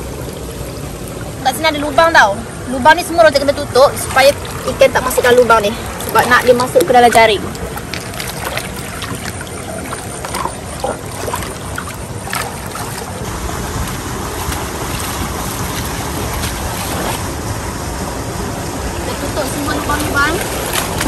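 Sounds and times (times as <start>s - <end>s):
stream flowing over stones: 0.0s - 21.0s
stones knocking in water: 4.2s - 13.2s.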